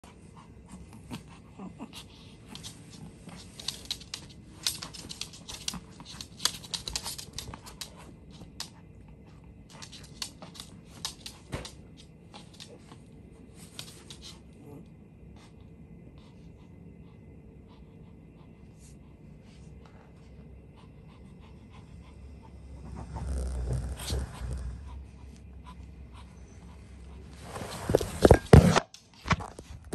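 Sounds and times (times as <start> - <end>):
dog claws clicking on wooden floor: 2.6 - 8.8, 9.7 - 12.8.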